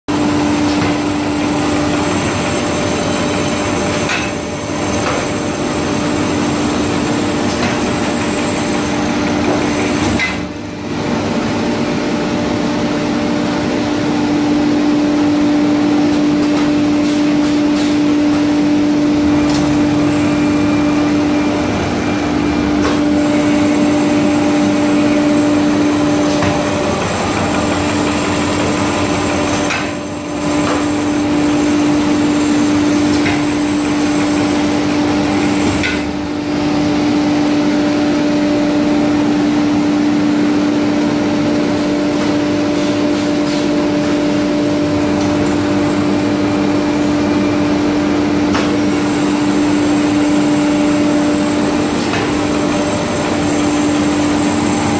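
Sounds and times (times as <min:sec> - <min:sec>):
brush-making machine running: 0:00.1 - 0:54.9.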